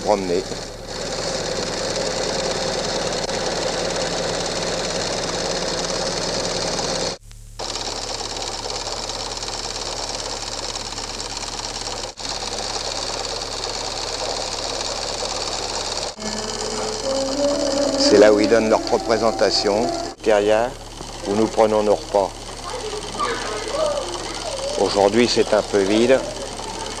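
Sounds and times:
film projector whirring: 0:00.0 - 0:27.0
low mains hum: 0:16.2 - 0:27.0.

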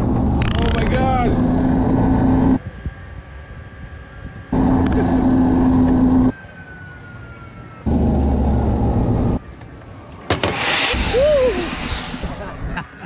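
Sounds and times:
zip line trolley on cable: 0:09.6 - 0:12.5
rushing wind: 0:10.3 - 0:13.0.

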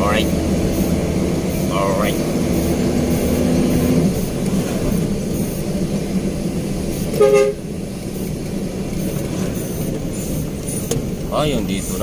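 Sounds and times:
truck engine and road drone: 0:00.0 - 0:12.0
horn toot: 0:07.1 - 0:07.7.

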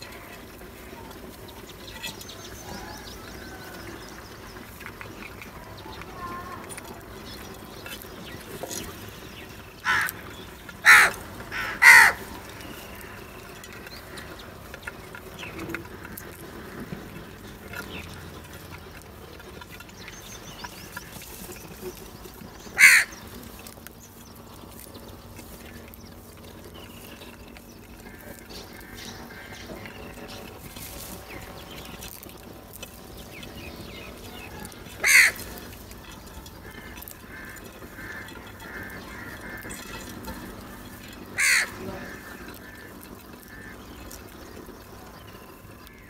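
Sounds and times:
crows cawing: 0:09.7 - 0:14.4, 0:22.6 - 0:23.8, 0:27.6 - 0:30.4, 0:34.1 - 0:44.7, 0:45.8 - 0:46.0.

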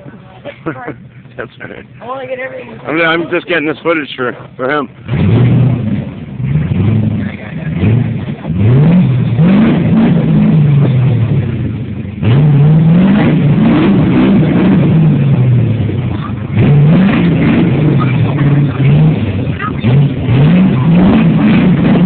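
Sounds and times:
engine revving hard: 0:05.0 - 0:22.0.

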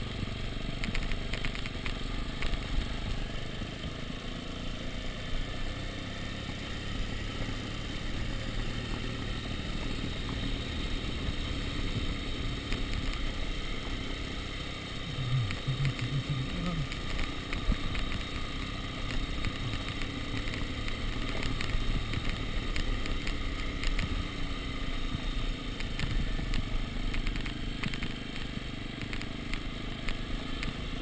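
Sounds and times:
clicks and rattles on cobblestones: 0:00.0 - 0:03.8, 0:08.3 - 0:14.1, 0:15.0 - 0:31.0
dirt bike engine running: 0:00.0 - 0:31.0.

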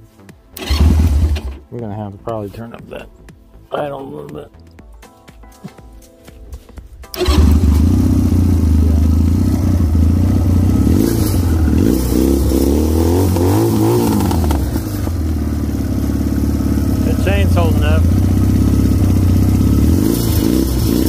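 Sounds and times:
engine idling: 0:07.1 - 0:21.0.

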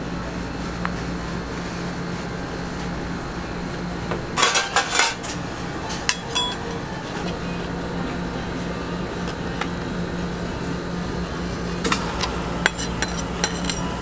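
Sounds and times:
steady low hum: 0:00.0 - 0:14.0
metal scrapers clattering: 0:04.4 - 0:07.5
sharp ringing clinks: 0:06.1 - 0:06.7.

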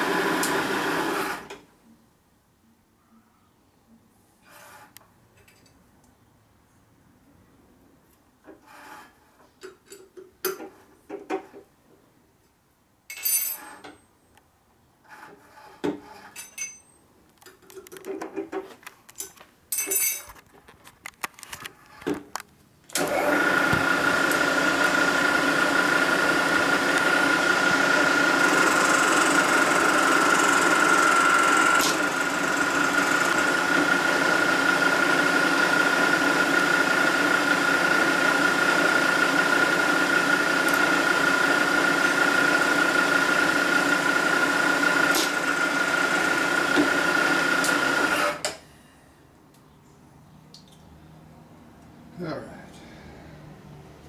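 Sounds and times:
milling machine whining: 0:00.0 - 0:01.6, 0:22.9 - 0:48.5
metal cutting noise: 0:23.0 - 0:48.5.

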